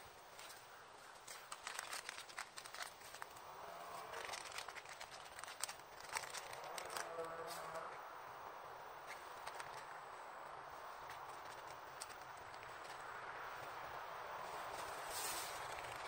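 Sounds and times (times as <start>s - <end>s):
crinkly packet rustling: 0.4s - 7.8s, 9.0s - 10.0s, 11.0s - 13.0s, 14.7s - 16.0s
small clicks: 1.2s - 7.4s.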